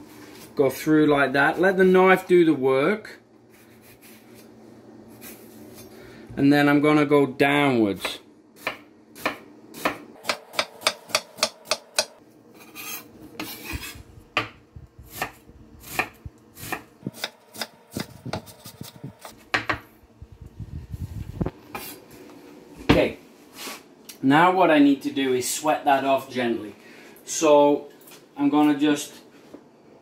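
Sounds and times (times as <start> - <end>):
knife chopping on wooden board: 8.6 - 12.2, 13.4 - 19.9
blade scraping across board: 12.6 - 14.1.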